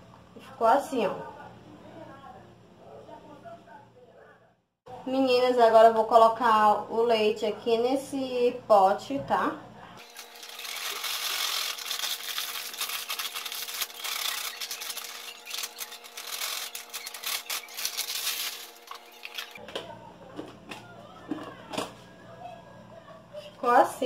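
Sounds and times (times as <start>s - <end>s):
plastic packet crinkling: 10.0s - 19.6s
powder pouring into container: 10.0s - 19.6s.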